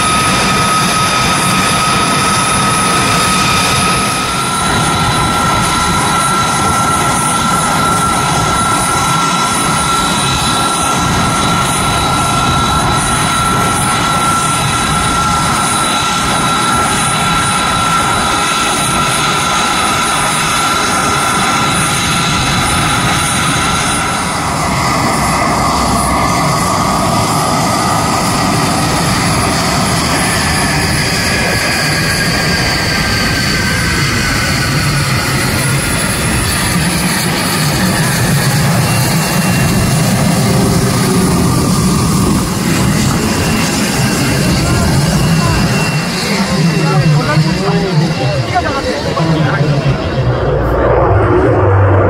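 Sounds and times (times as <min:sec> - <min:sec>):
jet engines idling whine: 0:00.0 - 0:52.0.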